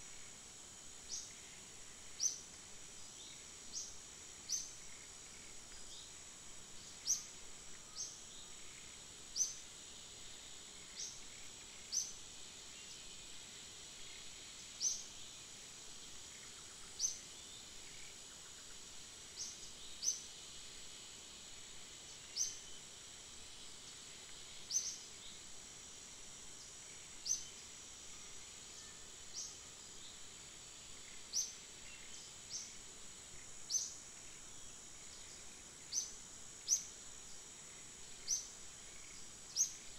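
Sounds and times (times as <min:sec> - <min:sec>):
high-pitched insect drone: 0:00.0 - 0:39.9.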